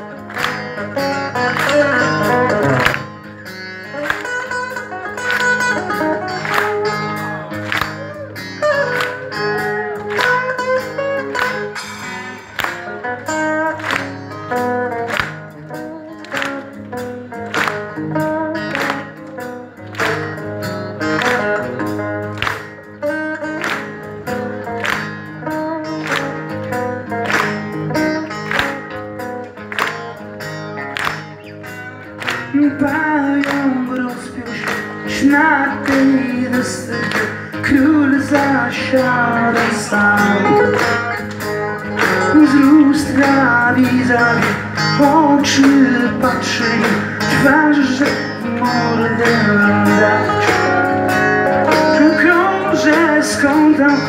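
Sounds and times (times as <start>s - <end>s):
acoustic guitar strumming: 0.0s - 54.0s
harmonica melody: 40.2s - 42.9s.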